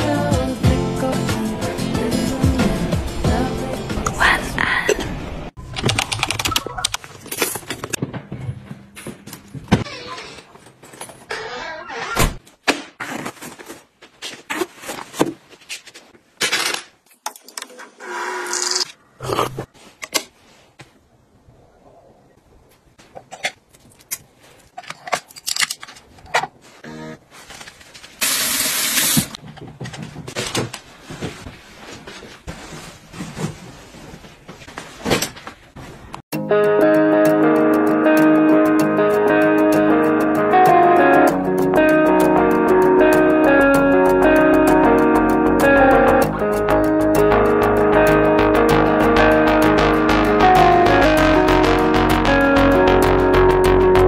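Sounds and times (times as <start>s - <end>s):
front door opening and shutting: 9.7s - 12.4s
bedding rustling: 29.4s - 36.1s.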